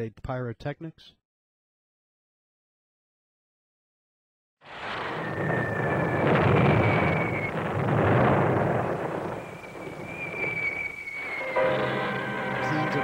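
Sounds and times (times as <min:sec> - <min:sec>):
high whistles: 0:04.7 - 0:13.0
rumbling explosions: 0:04.7 - 0:13.0.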